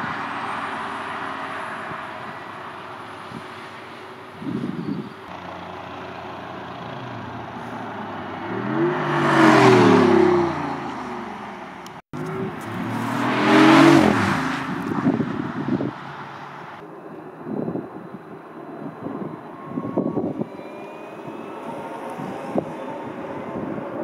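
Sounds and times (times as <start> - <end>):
sports car driving past: 6.8 - 16.8.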